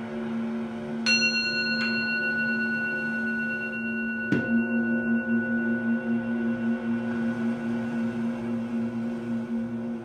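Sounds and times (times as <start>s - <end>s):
low singing bowl humming: 0.0s - 10.0s
deep singing bowl strike: 1.0s - 10.0s
small singing bowl struck: 1.1s - 8.5s.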